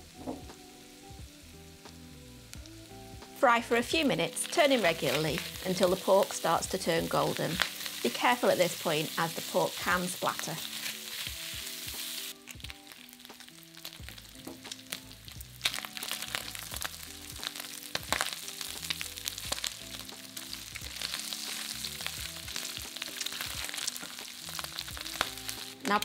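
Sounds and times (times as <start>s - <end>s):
meat sizzling in hot oil: 0.0s - 26.0s
soft background music: 0.0s - 26.0s
spatula scraping pan: 9.8s - 12.3s.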